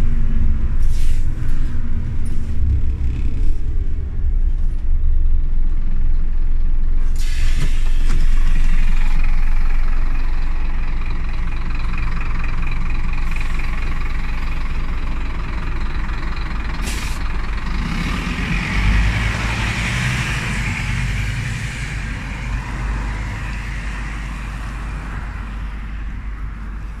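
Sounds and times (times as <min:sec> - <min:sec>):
bus engine rumble: 0:00.0 - 0:27.0
hiss: 0:00.8 - 0:01.3, 0:07.0 - 0:08.8, 0:16.8 - 0:17.2.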